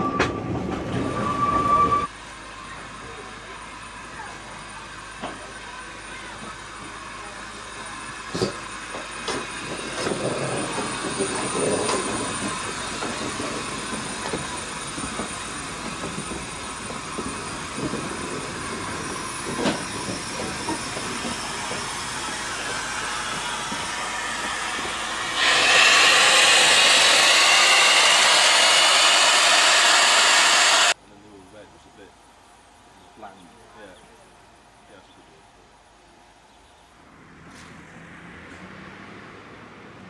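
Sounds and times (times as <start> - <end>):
train wheels clicking on rails: 6.3 - 31.0
steam hissing: 6.7 - 31.0
loud escaping steam hiss: 16.5 - 31.0.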